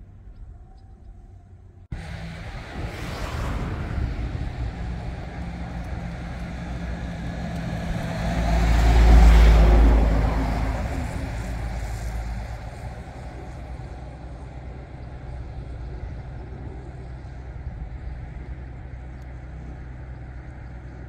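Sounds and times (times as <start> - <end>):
car passing close by: 2.0 - 14.2.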